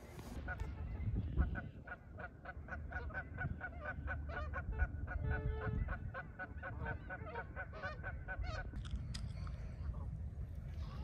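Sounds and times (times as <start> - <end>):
geese honking: 0.1 - 8.8.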